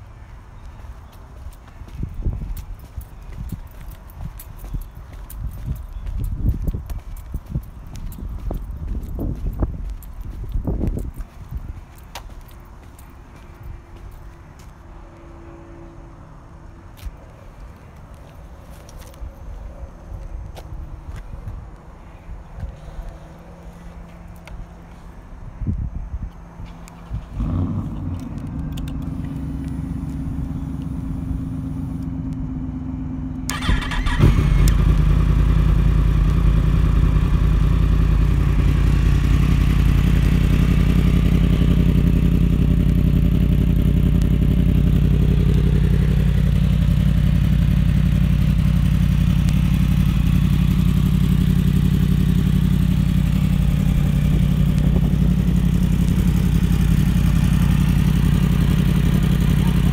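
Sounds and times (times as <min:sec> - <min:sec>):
motorcycle engine idling: 0:00.6 - 0:14.1, 0:27.1 - 0:59.9
motorcycle engine cranking: 0:33.5 - 0:35.4.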